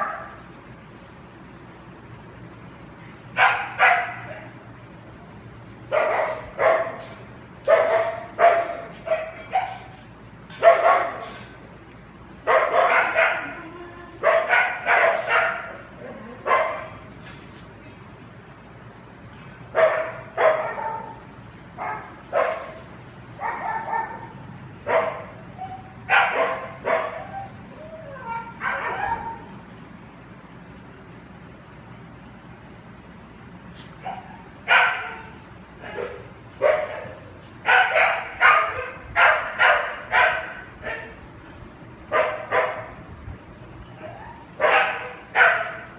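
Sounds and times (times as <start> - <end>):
dog barking: 3.4 - 4.5, 5.9 - 7.0, 7.7 - 9.8, 10.6 - 11.2, 12.5 - 13.6, 14.2 - 15.8, 16.5 - 16.9, 19.7 - 21.2, 21.8 - 22.8, 23.4 - 24.3, 24.9 - 25.3, 26.1 - 27.4, 28.6 - 29.5, 34.1 - 41.2, 42.1 - 43.0, 44.6 - 45.9.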